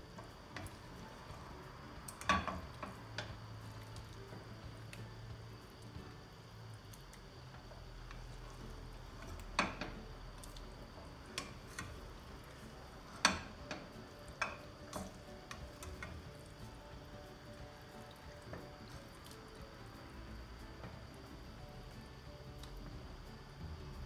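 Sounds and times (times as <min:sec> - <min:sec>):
wooden spoon tapping metal pan: 0:02.0 - 0:03.4, 0:09.2 - 0:10.1, 0:13.0 - 0:16.2.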